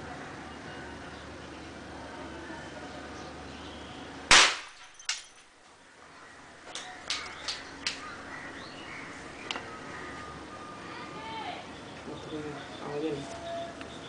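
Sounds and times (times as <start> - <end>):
small explosive pops: 4.3 - 5.3
loud sharp bang: 4.3 - 5.4.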